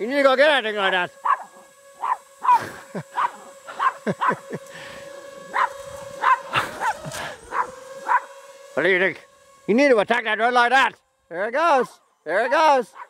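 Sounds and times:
drone rotor hum: 0:00.0 - 0:13.0
small dog yapping: 0:01.2 - 0:02.6, 0:03.2 - 0:04.4, 0:05.5 - 0:08.3.

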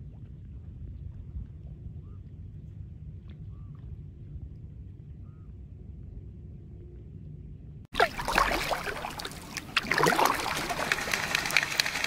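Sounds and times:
wings and feet splashing water: 0:07.9 - 0:12.0.

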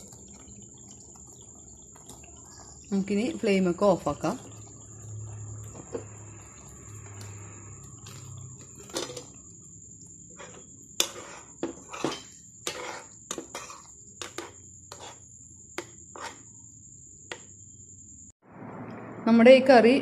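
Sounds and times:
spoon scraping a frying pan: 0:01.8 - 0:09.5, 0:10.2 - 0:16.5.

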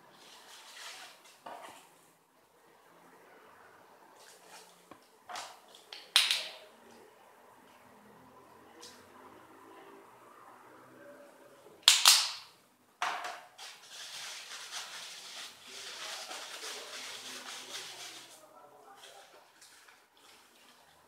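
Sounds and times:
paper tissue crackling: 0:13.6 - 0:18.4.

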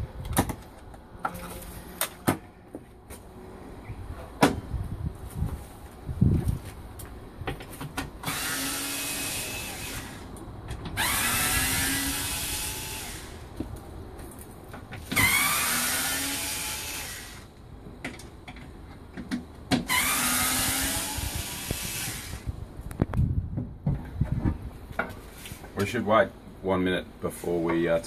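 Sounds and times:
cordless power screwdriver running: 0:08.2 - 0:10.2, 0:11.0 - 0:13.4, 0:15.2 - 0:17.5, 0:19.9 - 0:22.5.

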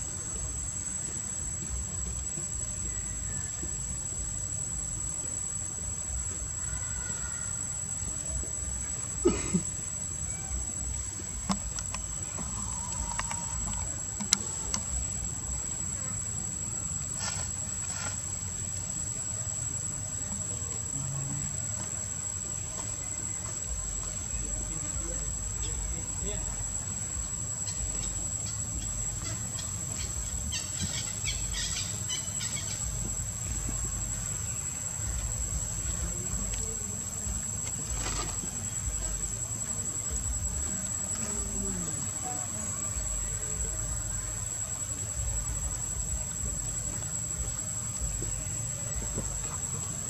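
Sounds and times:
insects chirring: 0:00.0 - 0:50.0.

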